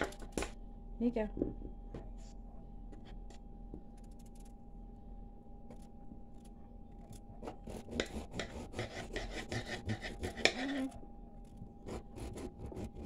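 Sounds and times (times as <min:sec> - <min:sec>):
faint hum: 0:00.0 - 0:13.0
knife cutting potatoes: 0:07.4 - 0:10.9.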